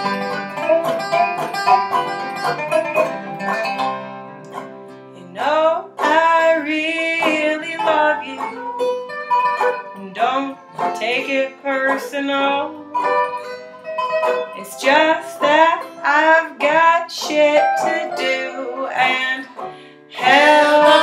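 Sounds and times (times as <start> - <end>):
bluegrass banjo dobro and guitar: 0.0 - 21.0
sliding dobro notes: 0.0 - 21.0.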